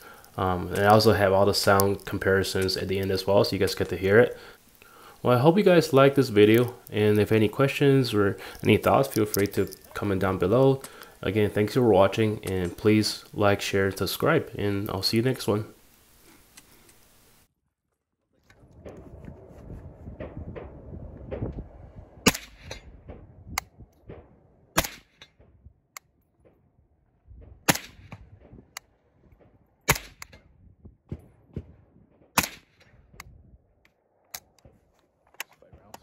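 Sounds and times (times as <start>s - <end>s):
dense noise: 0.0s - 17.5s, 18.4s - 33.2s
suppressed rifle shots: 22.2s - 23.2s, 24.0s - 25.5s, 27.6s - 28.6s, 29.8s - 30.4s, 32.3s - 32.9s.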